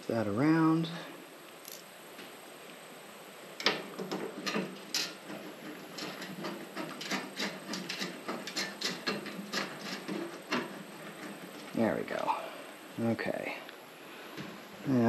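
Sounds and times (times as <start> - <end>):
metal fasteners clicking and rattling: 3.6 - 12.3.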